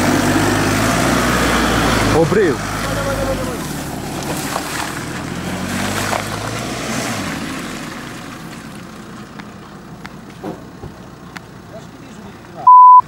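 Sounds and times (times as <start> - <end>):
car engine pulling under load: 0.0 - 12.6.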